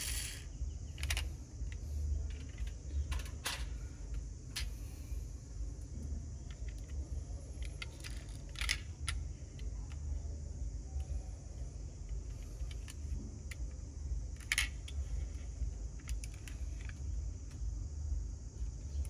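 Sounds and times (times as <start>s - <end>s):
toy truck clicks and rattles: 0.0s - 1.3s, 7.6s - 10.0s, 14.4s - 15.0s, 16.0s - 17.0s
low steady rumble: 0.0s - 19.0s.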